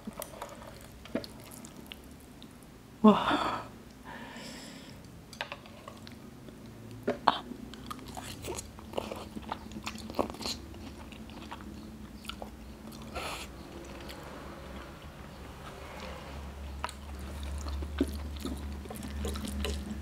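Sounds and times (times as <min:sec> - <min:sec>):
noodles slurped and chewed: 0:07.7 - 0:20.0.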